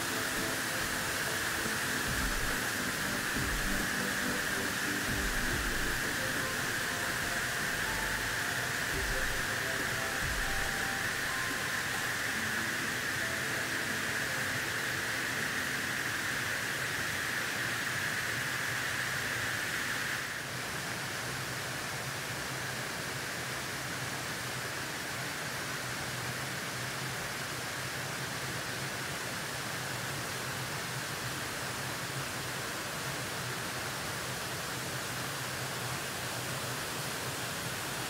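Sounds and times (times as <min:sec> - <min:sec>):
waterfall rushing: 0:00.0 - 0:25.2.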